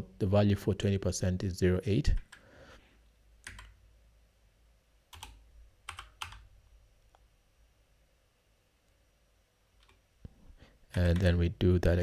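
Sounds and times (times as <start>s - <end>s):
computer keyboard keystrokes: 3.4s - 3.8s, 5.1s - 6.5s.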